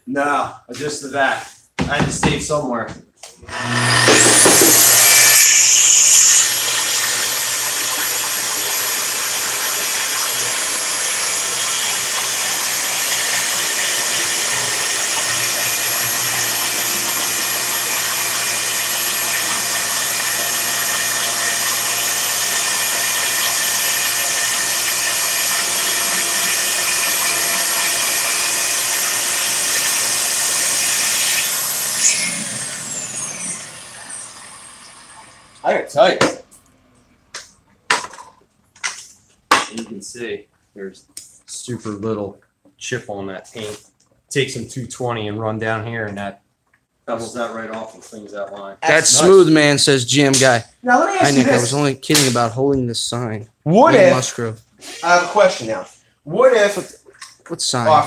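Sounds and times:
saw cutting through wood: 3.5s - 35.7s, 48.8s - 50.6s, 51.2s - 52.5s, 53.7s - 55.8s
track saw motor whine: 3.5s - 35.7s.

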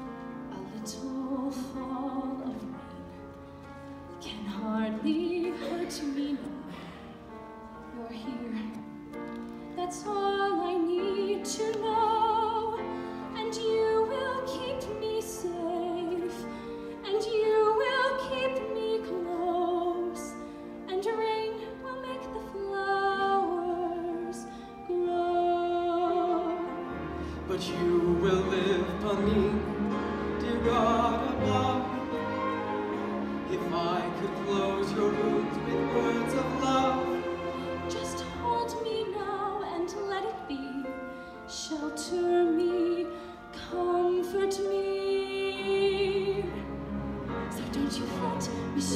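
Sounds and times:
orchestra with strings: 0.0s - 48.9s
operatic singing with vibrato: 20.9s - 48.9s.

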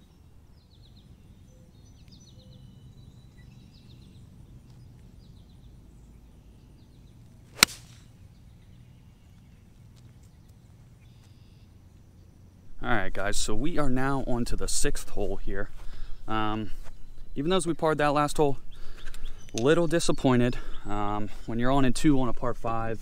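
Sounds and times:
golf club striking ball: 7.5s - 8.1s.

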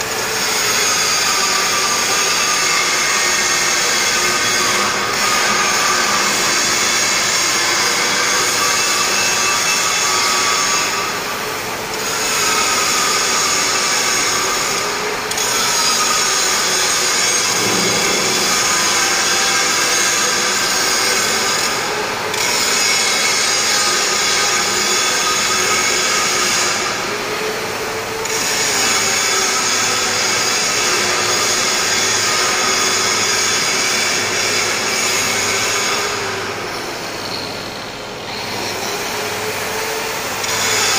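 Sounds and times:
angle grinder grinding metal: 0.1s - 11.2s, 11.9s - 27.0s.

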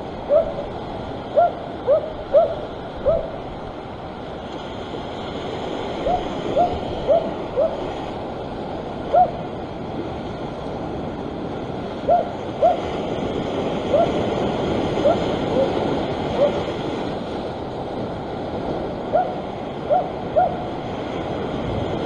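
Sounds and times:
surf washing against rocks: 0.0s - 22.0s
dog barking: 0.3s - 0.7s, 1.4s - 3.4s, 6.0s - 7.8s, 9.1s - 9.4s, 12.1s - 12.8s, 16.4s - 16.6s, 19.1s - 20.6s.

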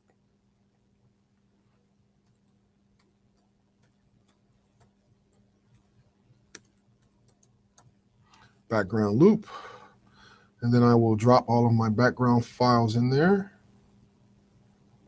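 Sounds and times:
faint steady hum: 0.0s - 15.0s
keyboard typing clicks: 2.2s - 5.9s, 6.5s - 8.0s.

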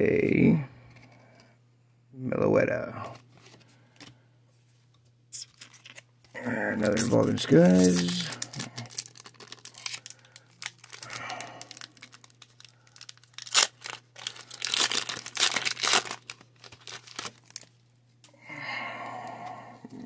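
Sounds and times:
foil pack crinkling and tearing: 5.4s - 6.0s, 6.8s - 17.8s.

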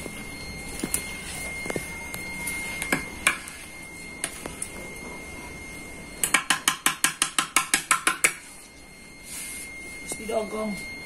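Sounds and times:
hands tapping stone pot: 6.2s - 8.4s.

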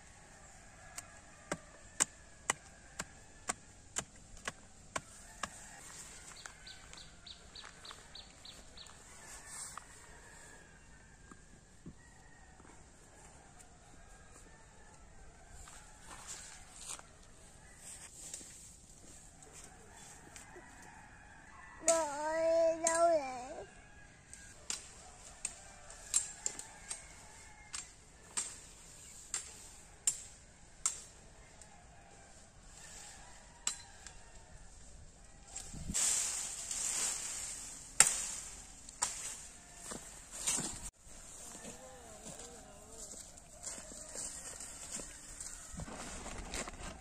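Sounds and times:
machete chopping branches: 35.6s - 40.9s.

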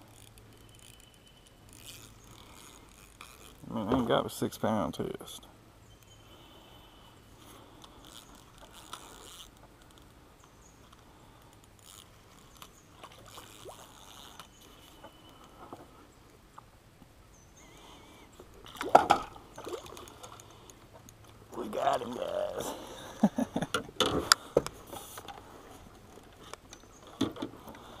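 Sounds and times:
fishing reel cranking: 0.0s - 3.6s, 7.8s - 9.6s, 11.8s - 12.6s, 13.3s - 15.0s
water splashing: 18.6s - 20.7s, 21.5s - 23.0s.

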